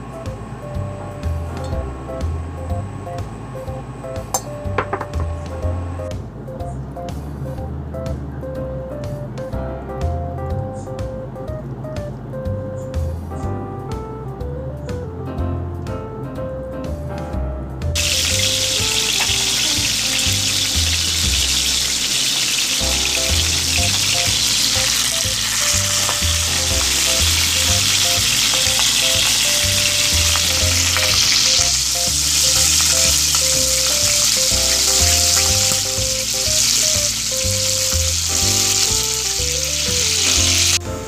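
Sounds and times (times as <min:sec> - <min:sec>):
background music with bass beat: 0:00.0 - 0:21.8, 0:22.8 - 0:41.0
chicken wings sizzling in oil: 0:18.0 - 0:40.9.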